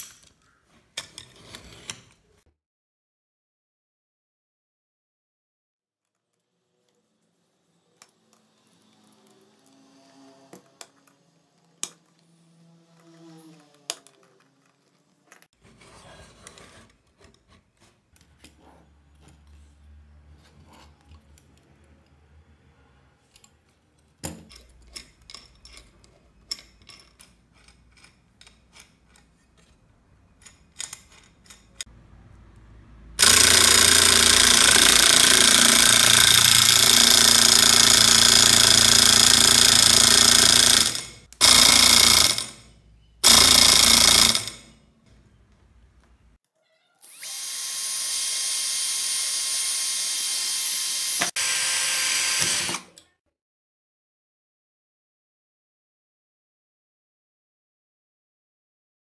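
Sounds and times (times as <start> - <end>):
electric motor whirring: 33.2 - 42.6, 47.1 - 52.9.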